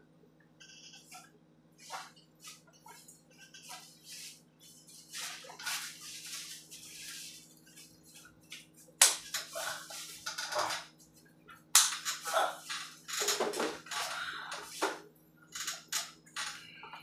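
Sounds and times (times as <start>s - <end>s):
hands rubbing skin and cloth: 1.8s - 12.0s.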